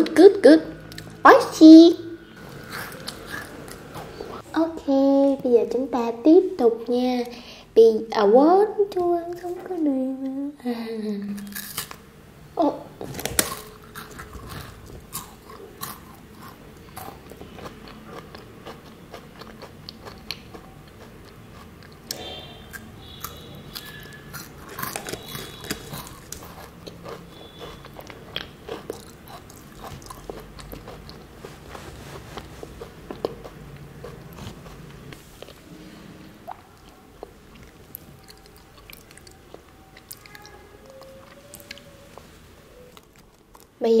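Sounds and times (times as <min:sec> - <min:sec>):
crunching bites of wafer bar: 0:22.7 - 0:27.8.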